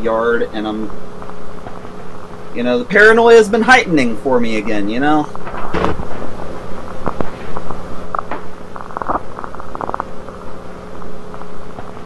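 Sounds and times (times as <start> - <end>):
low electrical hum: 0.0 - 12.0
crackling and clicking: 5.4 - 12.0.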